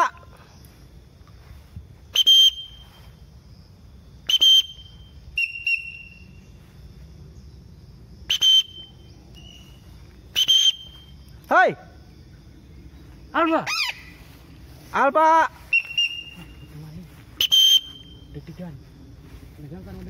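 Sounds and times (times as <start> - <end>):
shrill whistle blasts: 2.1 - 3.2, 4.2 - 6.4, 8.3 - 11.3, 15.6 - 16.7, 17.4 - 18.3.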